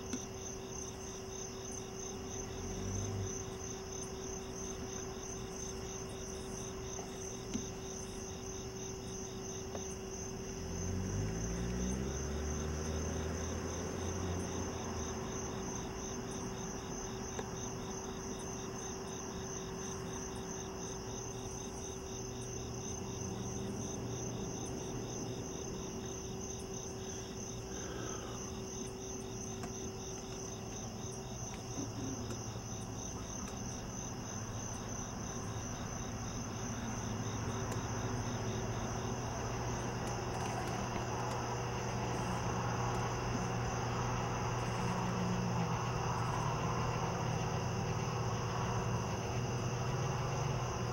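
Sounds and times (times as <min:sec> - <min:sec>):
crickets chirring: 0:00.0 - 0:50.9
faint steady hum: 0:00.0 - 0:50.9.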